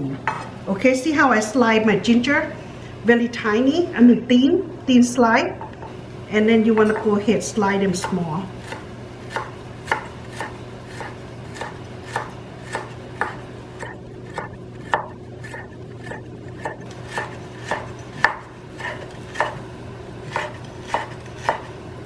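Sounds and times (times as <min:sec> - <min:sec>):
knife slicing on wooden board: 0:08.6 - 0:19.6, 0:20.3 - 0:21.7.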